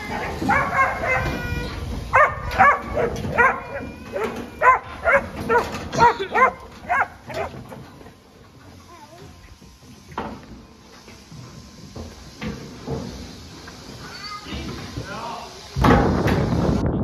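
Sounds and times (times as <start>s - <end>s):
dog barking rapidly: 0.2s - 1.4s, 2.1s - 7.6s.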